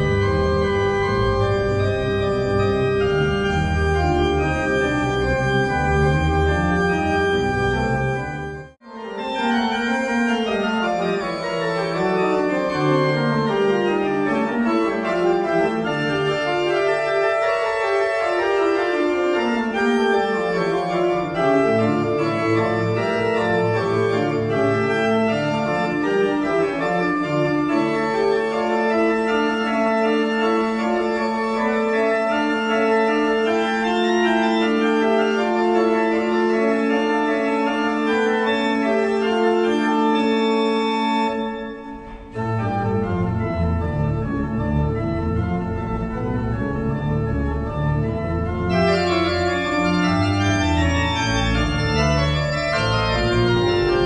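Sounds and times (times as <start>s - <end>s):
organ music: 0.0s - 54.0s.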